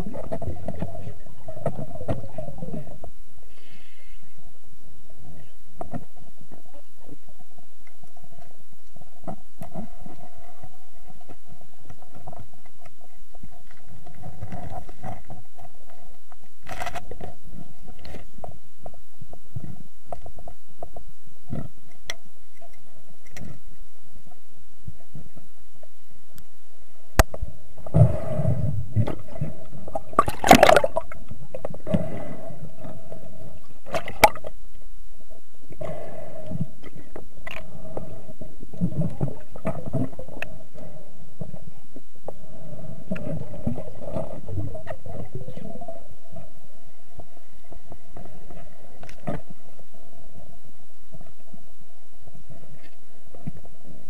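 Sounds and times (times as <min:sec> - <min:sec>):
underwater gurgling and bubbling: 0:00.0 - 0:03.2, 0:27.2 - 0:54.0
faint steady whine: 0:00.0 - 0:54.0
muffled underwater thumps: 0:28.9 - 0:31.1.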